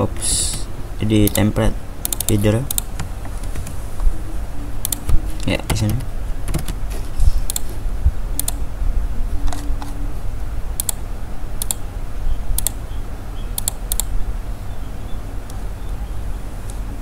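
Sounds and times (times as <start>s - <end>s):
steady low hum: 0.0s - 17.0s
mouse and keyboard clicks: 2.0s - 2.9s, 7.4s - 7.7s, 11.6s - 11.8s, 12.6s - 12.8s, 13.6s - 14.1s.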